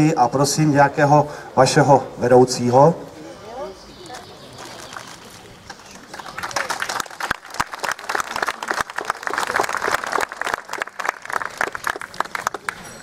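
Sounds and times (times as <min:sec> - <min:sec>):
crowd applauding: 0:04.6 - 0:13.0.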